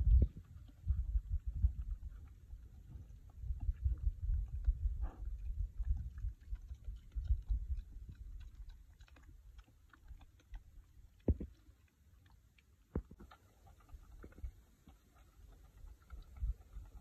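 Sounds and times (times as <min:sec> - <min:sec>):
low rumble: 0:00.0 - 0:09.6
piglet crunching food: 0:03.2 - 0:17.0.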